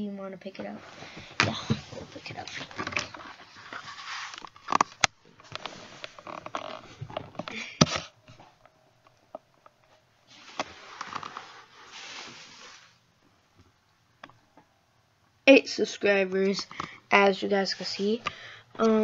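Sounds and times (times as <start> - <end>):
camera handling rustling: 2.5 - 8.1.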